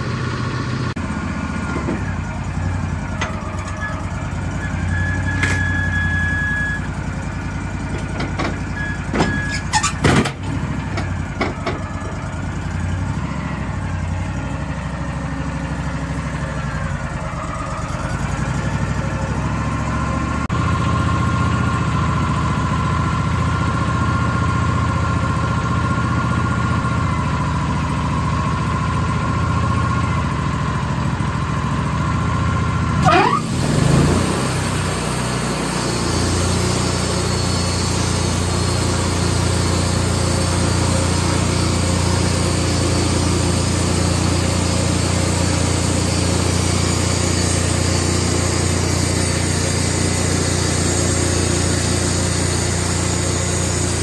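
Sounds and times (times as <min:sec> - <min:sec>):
sawmill engine running: 0:00.0 - 0:54.0.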